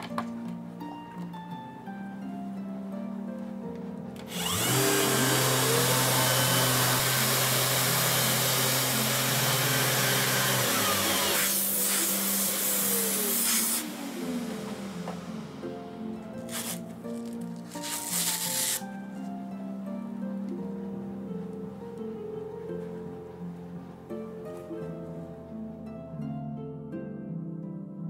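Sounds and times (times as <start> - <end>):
electric sander running: 4.3 - 16.8.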